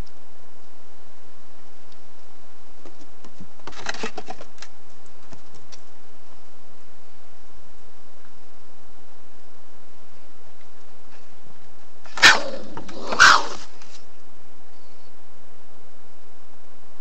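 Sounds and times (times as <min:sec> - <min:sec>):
animals scrabbling and knocking: 0:02.8 - 0:05.8.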